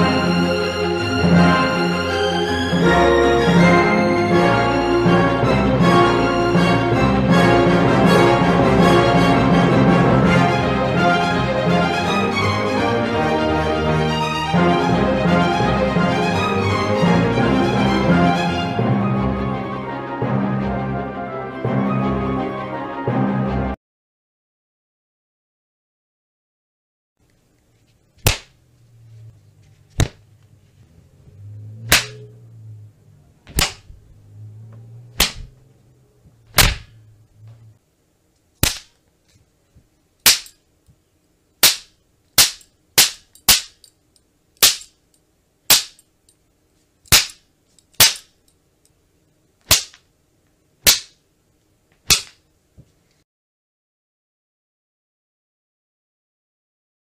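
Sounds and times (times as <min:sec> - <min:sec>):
low hum: 0:27.4 - 0:46.7
sharp cracks: 0:28.2 - 0:28.6, 0:29.9 - 0:30.3, 0:31.9 - 0:32.3, 0:33.5 - 0:34.0, 0:35.2 - 0:35.6, 0:36.5 - 0:37.1, 0:38.6 - 0:39.0, 0:40.2 - 0:40.6, 0:41.6 - 0:43.9, 0:44.6 - 0:45.0, 0:45.7 - 0:46.1, 0:47.1 - 0:48.5, 0:49.6 - 0:50.1, 0:50.8 - 0:51.2, 0:52.0 - 0:52.5.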